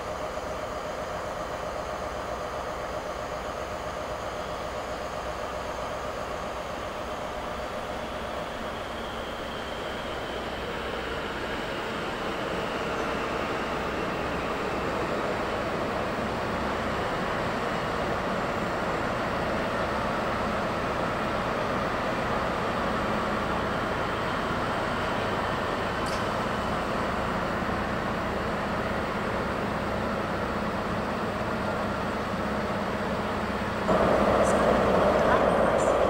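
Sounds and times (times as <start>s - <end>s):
train rumble and hiss: 0.0s - 36.0s
low steady hum: 33.9s - 36.0s.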